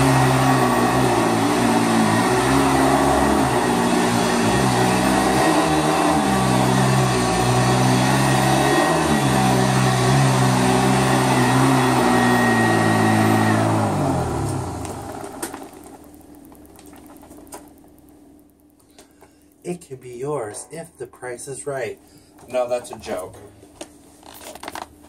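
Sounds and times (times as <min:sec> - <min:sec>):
vacuum cleaner running: 0:00.0 - 0:16.1
vacuum motor winding down: 0:00.0 - 0:16.2.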